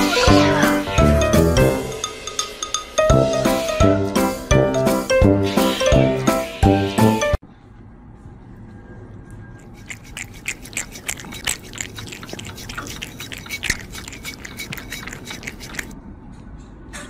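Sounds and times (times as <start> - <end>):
kitten lapping: 9.6 - 16.0.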